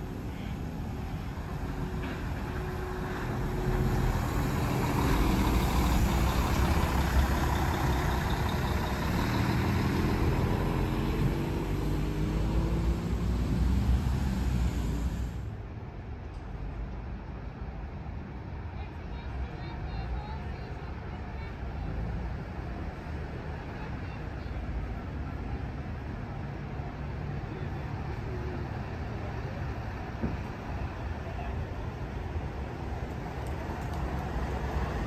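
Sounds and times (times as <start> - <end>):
coach diesel engine accelerating: 1.4 - 15.5.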